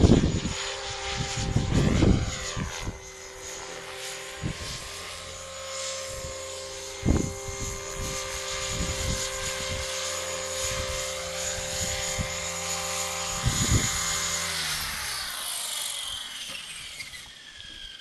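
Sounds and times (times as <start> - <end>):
wind buffeting microphone: 0.0 - 3.2, 4.3 - 5.0, 6.0 - 10.0, 10.6 - 12.5, 13.3 - 14.3
model helicopter whine: 0.0 - 18.0.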